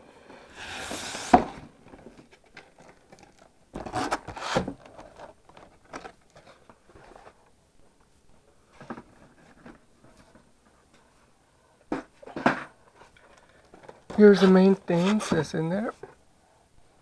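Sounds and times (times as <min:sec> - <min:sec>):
cardboard box scraping: 0:00.5 - 0:01.6.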